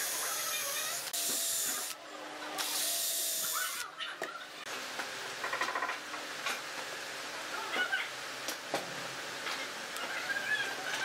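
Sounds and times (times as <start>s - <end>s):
cordless drill whine: 0.0s - 2.0s, 2.6s - 3.8s.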